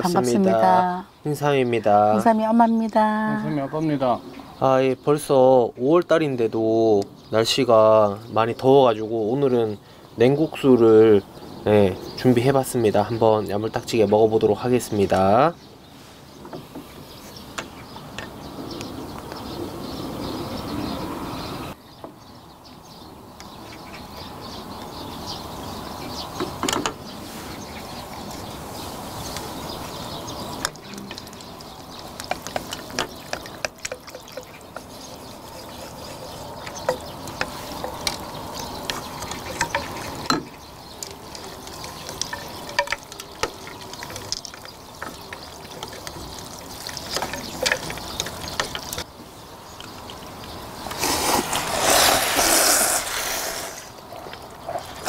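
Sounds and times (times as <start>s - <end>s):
broth sloshing: 27.2s - 49.1s
utensils clinking on metal bowls: 30.6s - 49.0s.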